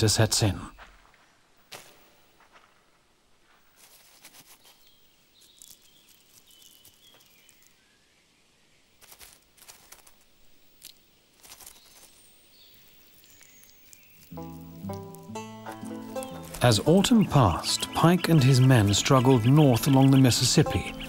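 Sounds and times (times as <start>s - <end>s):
squirrel rustling in dry leaves: 3.4s - 8.0s, 8.8s - 21.0s
faint bird chirps: 4.4s - 9.0s, 9.7s - 21.0s.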